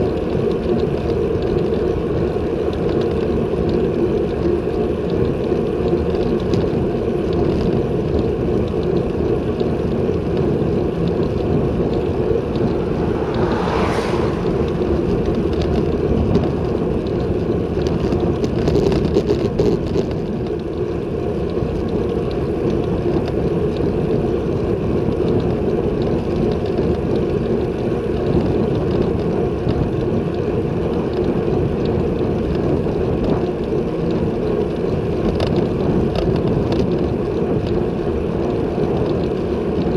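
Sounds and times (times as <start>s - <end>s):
wind rushing over microphone: 7.8s - 20.5s.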